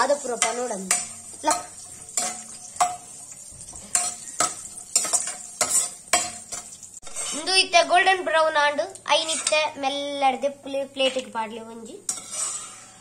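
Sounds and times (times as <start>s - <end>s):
metal spoon scraping pan: 0.0s - 7.8s, 9.1s - 9.8s, 11.2s - 13.0s
nuts sizzling in oil: 0.0s - 8.0s, 10.6s - 13.0s.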